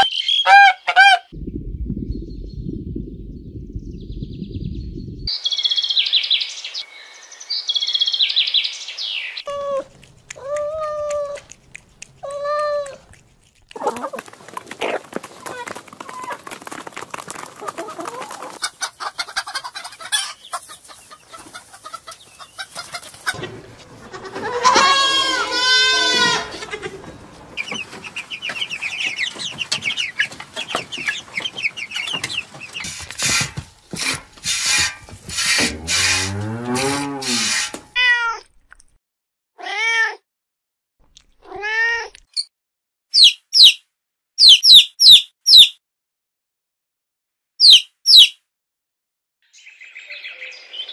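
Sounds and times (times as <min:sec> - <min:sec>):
chickens clucking: 0:13.7 - 0:36.4
chick peeping: 0:17.6 - 0:23.4, 0:26.5 - 0:33.5, 0:43.2 - 0:43.8, 0:44.4 - 0:45.7, 0:47.6 - 0:48.4.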